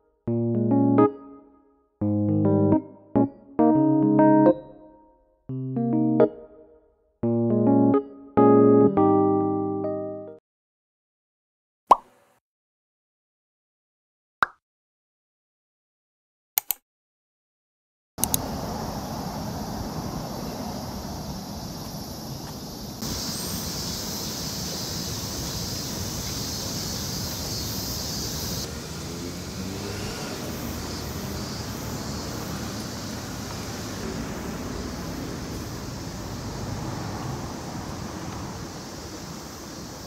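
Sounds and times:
passing traffic: 0:18.2 - 0:40.0.

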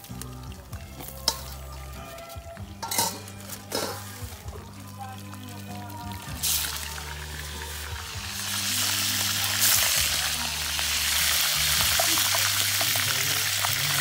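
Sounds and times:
seafood deep-frying in oil: 0:00.0 - 0:14.0.

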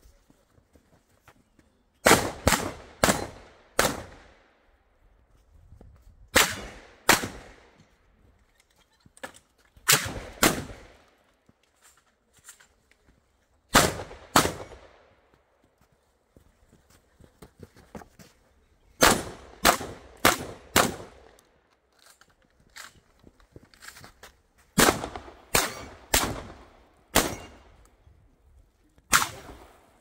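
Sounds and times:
shotgun shots with echo: 0:02.0 - 0:04.2, 0:06.4 - 0:07.6, 0:09.9 - 0:10.9, 0:13.7 - 0:14.9, 0:24.8 - 0:27.6, 0:29.1 - 0:29.8.

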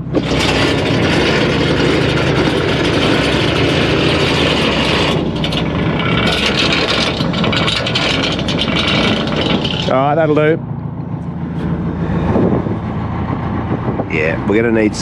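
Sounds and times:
anchor winch paying out chain: 0:00.0 - 0:10.6
boat engine droning: 0:00.0 - 0:15.0.

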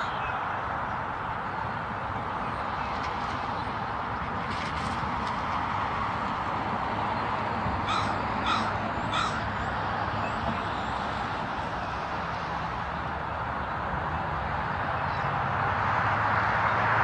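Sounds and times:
crow cawing: 0:07.8 - 0:09.5.

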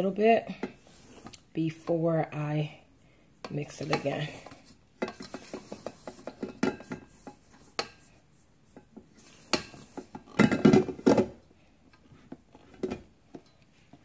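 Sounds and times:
spatula scraping metal bowl: 0:03.4 - 0:10.4.

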